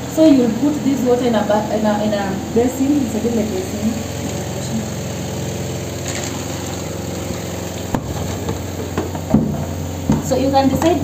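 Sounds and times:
spin-dryer motor running: 0.0 - 11.0
light knocks: 7.9 - 11.0.

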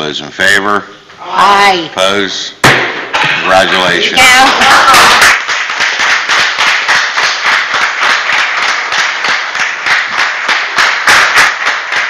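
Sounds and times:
people applauding: 4.2 - 12.0.

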